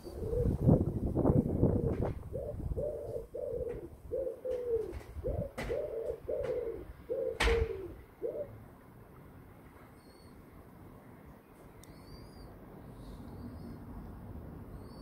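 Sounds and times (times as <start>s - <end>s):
wood pigeon cooing: 0.0s - 8.6s.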